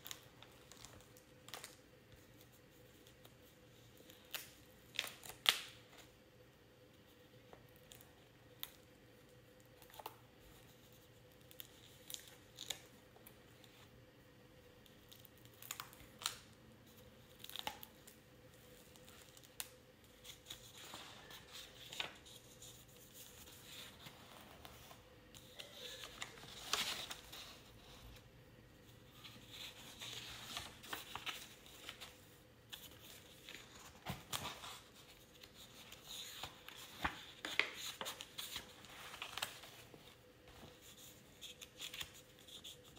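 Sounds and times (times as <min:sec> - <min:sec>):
faint steady hum: 0:00.0 - 0:42.9
paper pages turning: 0:17.3 - 0:42.9.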